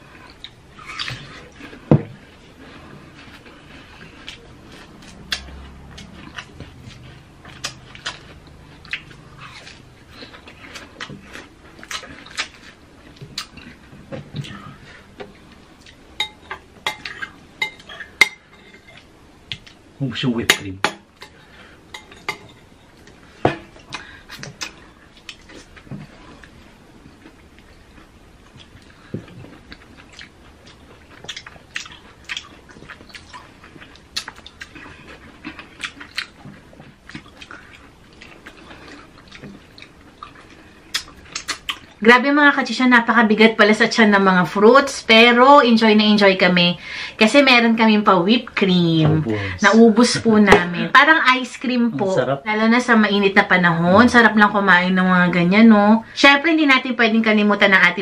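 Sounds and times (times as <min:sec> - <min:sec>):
people chewing and lip-smacking: 0:00.1 - 0:18.2, 0:23.8 - 0:42.0.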